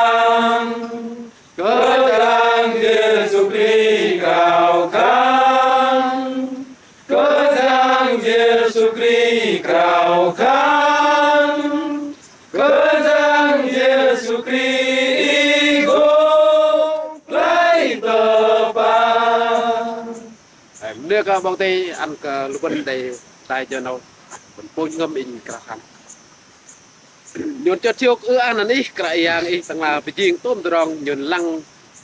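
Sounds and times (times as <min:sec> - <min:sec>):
men singing a cappella: 0:00.0 - 0:20.4.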